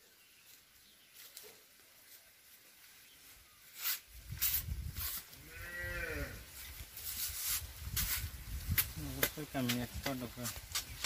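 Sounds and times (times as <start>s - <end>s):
wind rumble on microphone: 4.2s - 5.2s, 7.4s - 11.0s.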